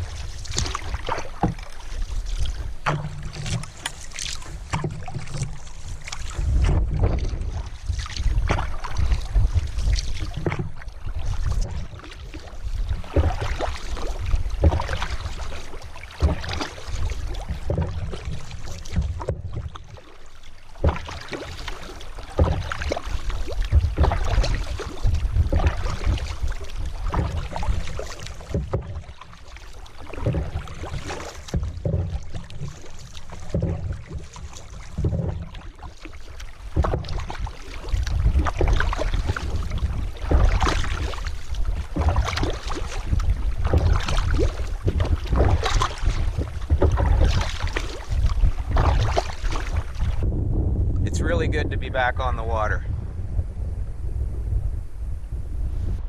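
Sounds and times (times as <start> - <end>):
paddle knocking against canoe: 0.0 - 52.8
paddle strokes in water: 0.0 - 56.0
low wind rumble: 2.0 - 19.9, 36.5 - 56.0.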